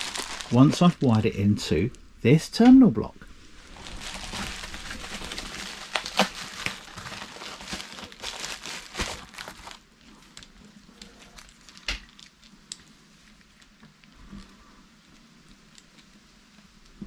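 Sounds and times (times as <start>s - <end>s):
bubble wrap bag crinkling: 0.0s - 1.2s, 3.5s - 14.5s.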